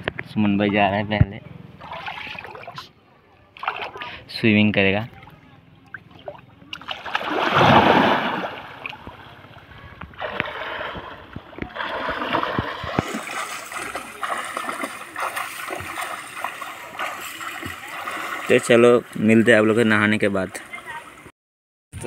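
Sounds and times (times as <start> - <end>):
water splashing in river: 1.8 - 4.2, 5.9 - 19.6
man swimming: 6.9 - 19.7.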